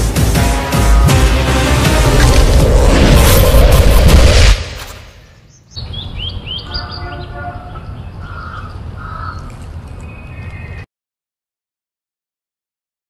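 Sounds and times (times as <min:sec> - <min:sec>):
loud background music: 0:00.0 - 0:03.2
birds chirping: 0:05.2 - 0:10.9.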